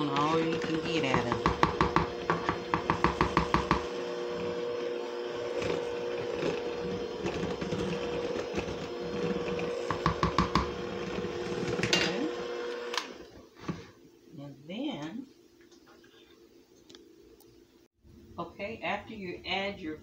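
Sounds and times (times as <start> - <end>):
hand mixer humming: 0.0 - 13.8.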